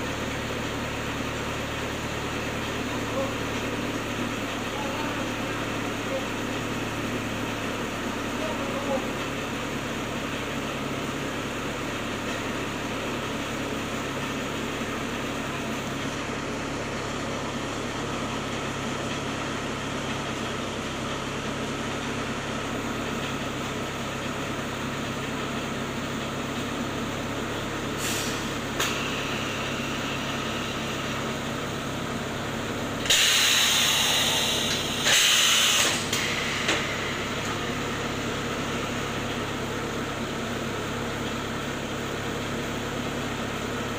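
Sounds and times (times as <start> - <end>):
machine hissing bursts: 33.0 - 37.1.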